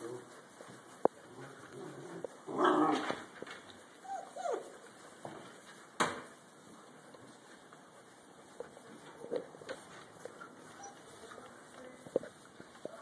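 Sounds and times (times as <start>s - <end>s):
puppy yelp: 4.0s - 4.7s, 10.7s - 11.2s.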